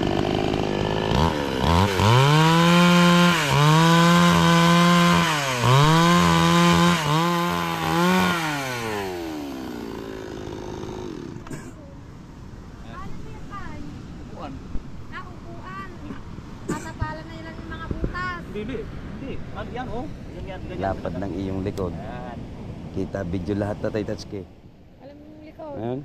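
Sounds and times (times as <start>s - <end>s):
chainsaw cutting wood: 0.0s - 11.7s.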